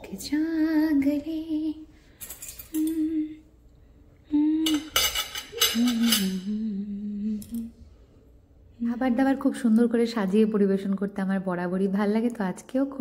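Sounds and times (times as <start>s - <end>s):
woman humming: 2.7s - 3.6s, 4.2s - 7.9s
cutlery clinking on a plate: 4.7s - 6.4s.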